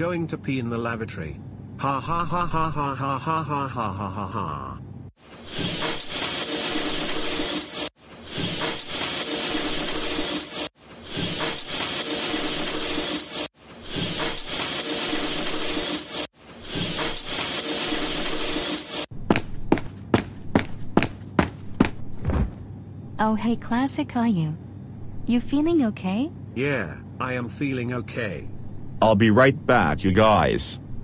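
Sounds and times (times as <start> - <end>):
stream of liquid pouring: 5.2 - 19.1.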